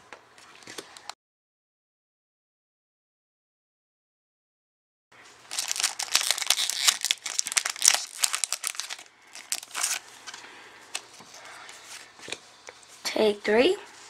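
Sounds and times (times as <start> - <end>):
foil wrapper crinkling and tearing: 5.5 - 10.1
cards rustling: 5.5 - 12.1.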